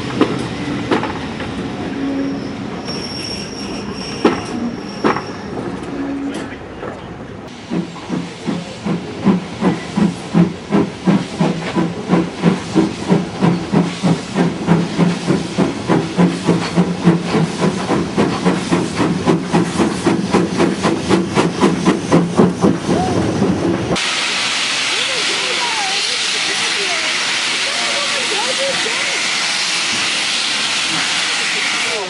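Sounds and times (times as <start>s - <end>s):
steam hissing: 7.5s - 23.2s, 23.9s - 32.0s
steam locomotive chuffing: 7.5s - 32.0s.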